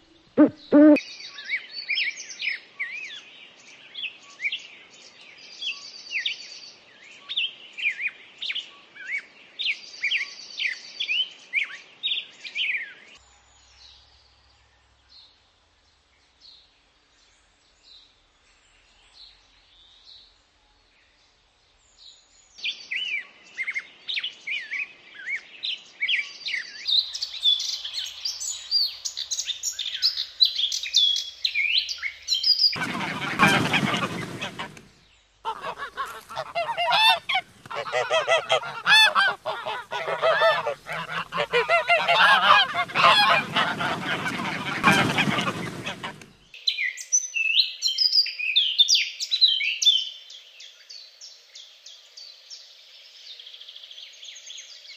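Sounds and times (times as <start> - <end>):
small birds chirping: 0.4 - 1.0, 26.8 - 34.9, 35.5 - 46.6.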